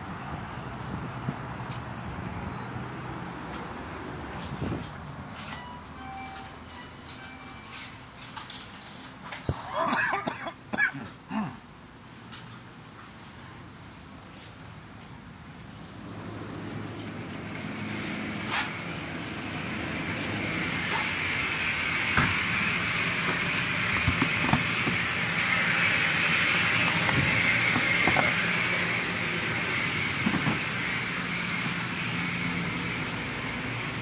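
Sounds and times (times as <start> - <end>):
refrigeration hum and hiss: 8.0 - 34.0.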